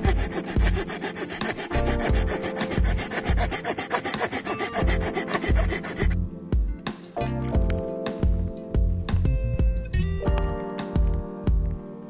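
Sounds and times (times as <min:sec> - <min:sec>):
hand saw cutting branch: 0:00.0 - 0:06.2.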